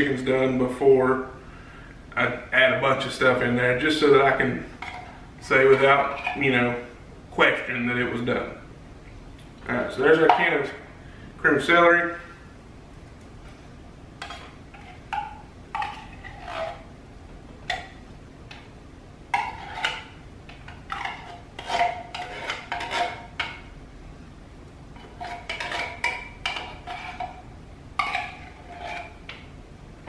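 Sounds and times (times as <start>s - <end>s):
metal spoon scraping tin can: 15.7s - 16.9s, 19.4s - 23.5s, 25.0s - 27.4s, 28.0s - 29.4s.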